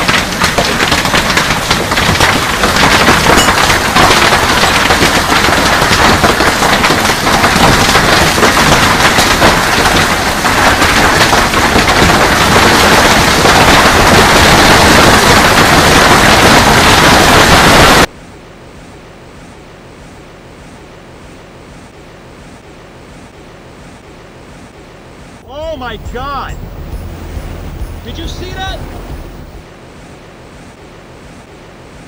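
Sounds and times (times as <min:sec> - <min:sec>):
hail clattering on the ground: 0:00.0 - 0:18.1, 0:27.7 - 0:29.4.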